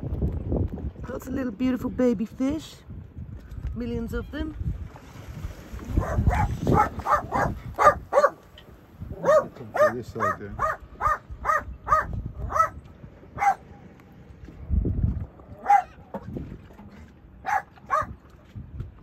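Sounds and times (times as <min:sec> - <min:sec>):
small dog yapping: 0:06.0 - 0:08.4, 0:09.2 - 0:12.8, 0:15.6 - 0:16.0, 0:17.4 - 0:18.1.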